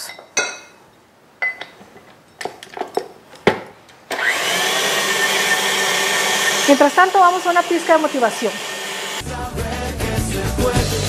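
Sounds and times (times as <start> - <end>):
stand mixer motor kneading dough: 4.2 - 9.2.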